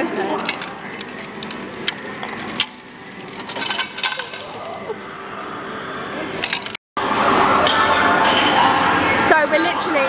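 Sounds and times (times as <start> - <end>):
coins clinking: 0.0 - 6.8
arcade background noise: 0.0 - 10.0.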